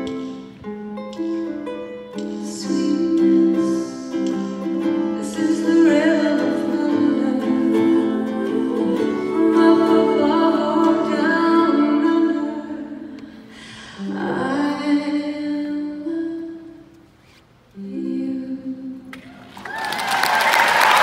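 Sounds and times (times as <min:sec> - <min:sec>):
ukulele chords: 0:00.0 - 0:17.0, 0:17.8 - 0:19.4
woman singing: 0:02.1 - 0:16.9, 0:17.7 - 0:19.2.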